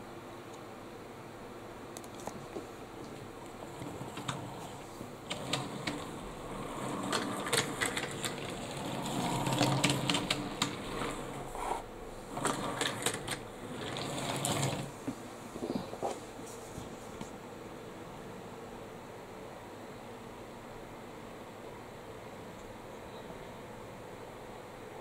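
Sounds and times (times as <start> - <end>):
sharp clicks and clacks: 2.0 - 11.8, 12.4 - 14.9
toy train wheels rattling on track: 3.6 - 14.9.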